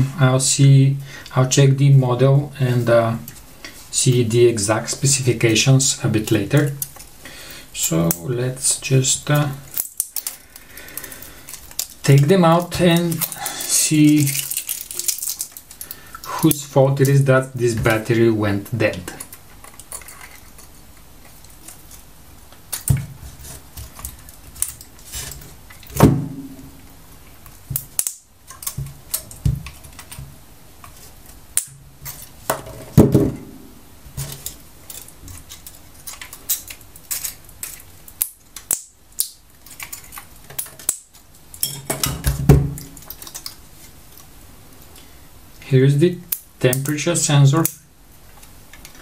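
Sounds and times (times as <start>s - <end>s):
battery cells clinking: 9.7s - 16.6s.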